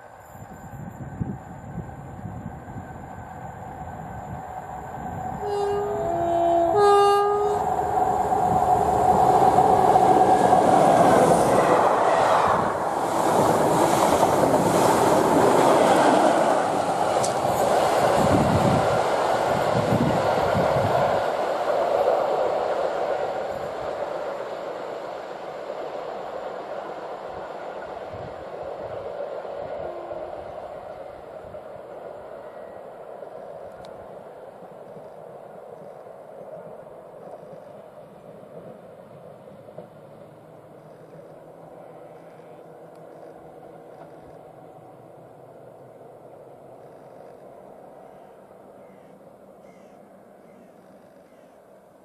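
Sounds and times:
train wheels on rails: 0:00.0 - 0:51.8
two-tone locomotive horn: 0:05.3 - 0:07.9, 0:29.8 - 0:30.6.

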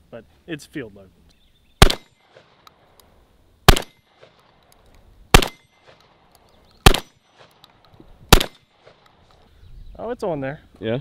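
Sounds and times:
shotgun shots: 0:01.8 - 0:02.7, 0:03.7 - 0:04.6, 0:05.3 - 0:06.2, 0:06.8 - 0:09.2.

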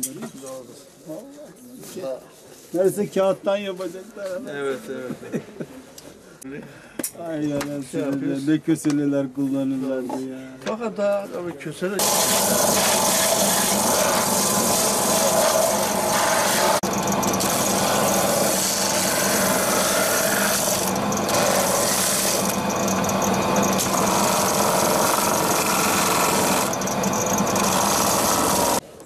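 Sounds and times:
sanding machine motor hum: 0:12.0 - 0:28.8.

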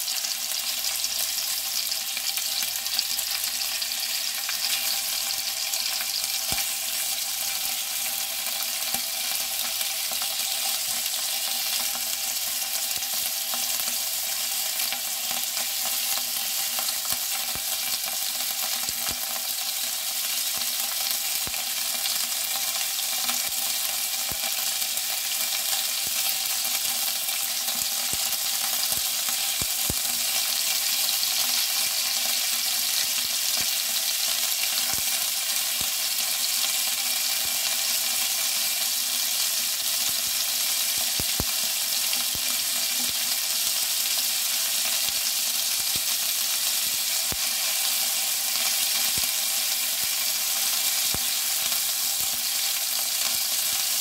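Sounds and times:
meat sizzling in a frying pan: 0:00.0 - 0:54.0.

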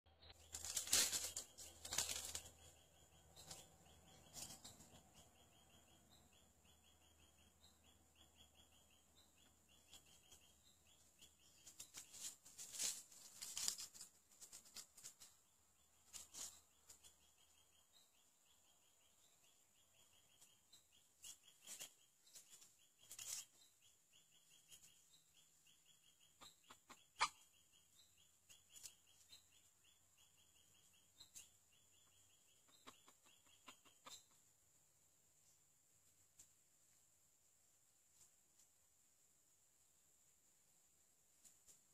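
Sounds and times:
faint high chirping: 0:00.1 - 0:37.0
rustles: 0:00.2 - 0:05.3, 0:09.8 - 0:17.4, 0:20.2 - 0:25.6, 0:28.4 - 0:29.6, 0:35.3 - 0:39.2, 0:40.2 - 0:41.9.

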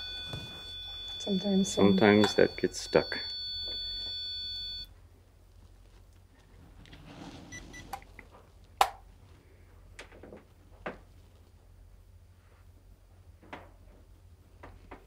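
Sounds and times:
high alarm tone: 0:00.0 - 0:04.9.

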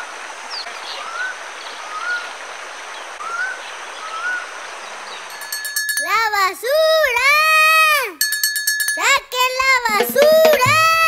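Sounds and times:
running water: 0:01.4 - 0:07.3, 0:09.7 - 0:11.0.

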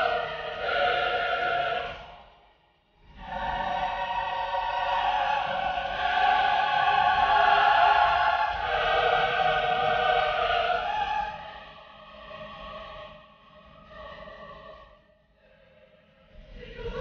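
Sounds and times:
choir singing held chords: 0:00.0 - 0:17.0.

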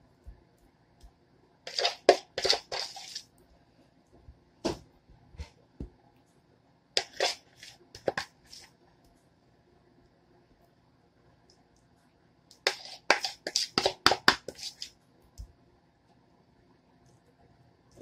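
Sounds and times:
spoon scraping plastic bowl: 0:01.7 - 0:03.3, 0:07.0 - 0:08.8, 0:12.5 - 0:15.0.

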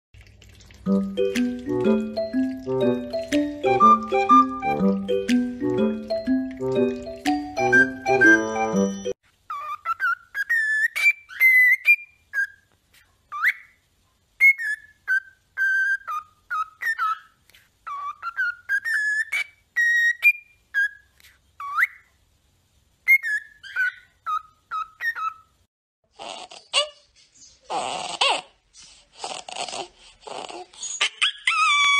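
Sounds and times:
cockatiel whistling: 0:07.6 - 0:12.6.

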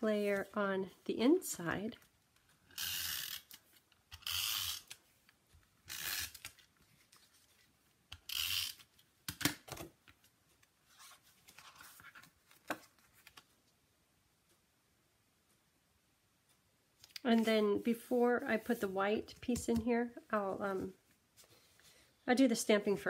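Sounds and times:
paper rustling: 0:10.5 - 0:13.6.

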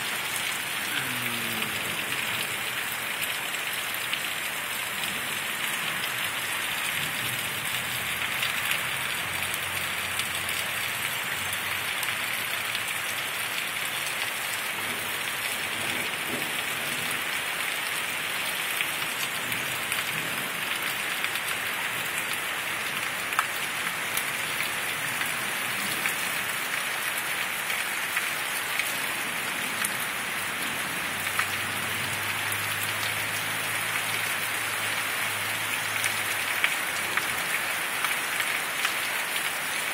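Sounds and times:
heavy rain falling: 0:00.0 - 0:39.9
raindrops ticking on a surface: 0:00.0 - 0:39.9.

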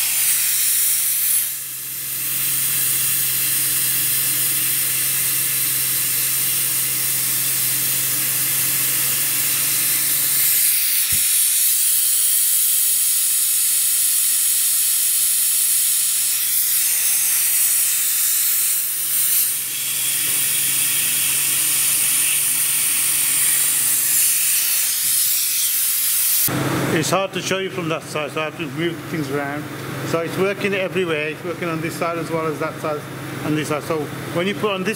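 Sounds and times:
compressed air hissing: 0:00.0 - 0:26.5.

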